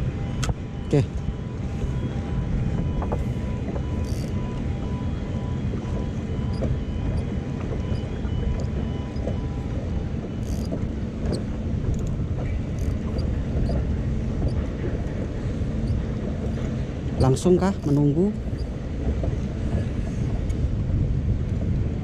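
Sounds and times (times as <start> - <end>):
low engine rumble: 0.0 - 22.0
faint ticks: 3.8 - 4.4, 10.2 - 15.2.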